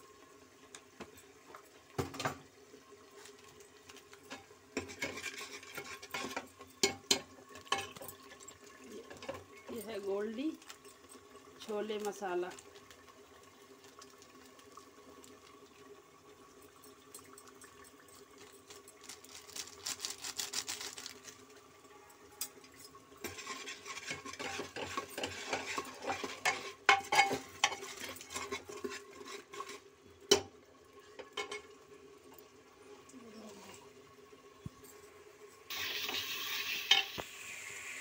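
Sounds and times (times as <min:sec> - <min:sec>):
spices frying in oil: 0:00.0 - 0:38.0
metal ladle scraping a pot: 0:04.8 - 0:06.4, 0:23.2 - 0:29.9.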